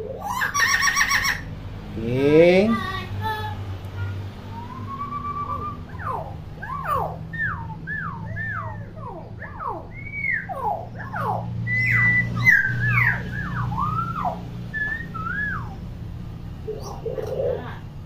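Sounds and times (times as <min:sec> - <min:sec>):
myna whistling: 0:04.5 - 0:15.8.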